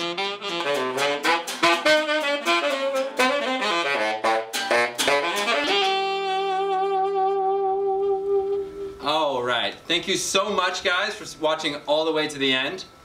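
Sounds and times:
tenor saxophone: 0:00.0 - 0:09.1.

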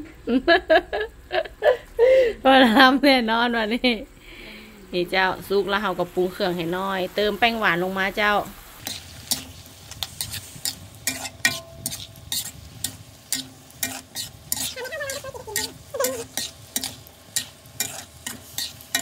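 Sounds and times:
food sizzling: 0:02.8 - 0:19.0
metal spatula scraping wok: 0:08.6 - 0:19.0.

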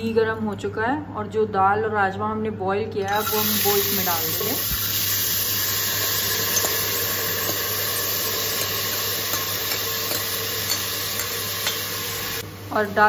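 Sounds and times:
beans sizzling in hot oil: 0:03.1 - 0:13.0.

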